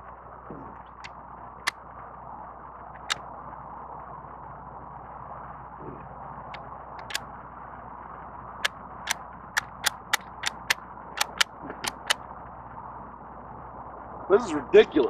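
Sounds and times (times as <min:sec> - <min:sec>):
shotgun slide clacking: 0:07.0 - 0:07.2, 0:09.6 - 0:12.2.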